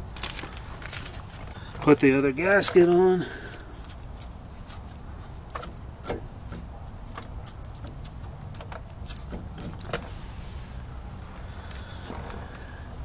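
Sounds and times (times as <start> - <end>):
low background hum: 0.0 - 13.0
hands clicking and tapping parts: 1.7 - 10.0.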